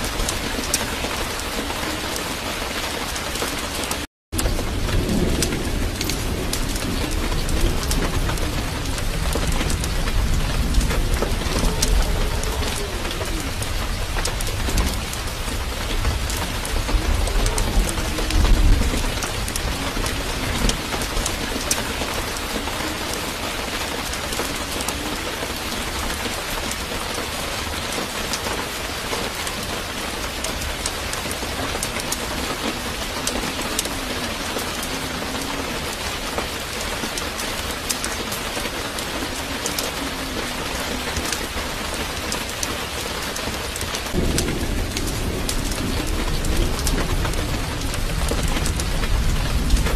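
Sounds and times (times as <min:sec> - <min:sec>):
steady rain: 0:00.0 - 0:49.9.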